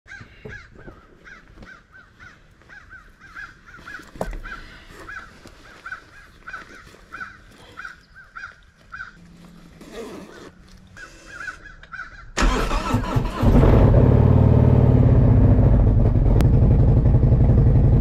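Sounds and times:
bird calling: 0.1s - 12.5s.

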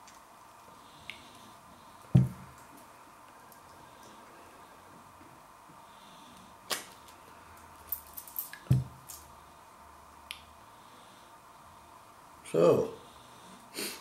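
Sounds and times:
bottle thumping on worktop: 2.2s - 2.4s, 8.7s - 9.0s.

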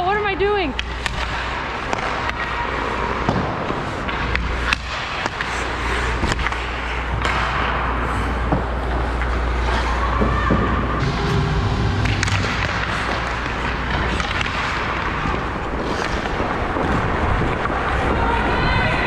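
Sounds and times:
stick and puck clacks: 0.1s - 10.8s, 11.9s - 18.2s
skates scraping on ice: 0.8s - 19.0s.

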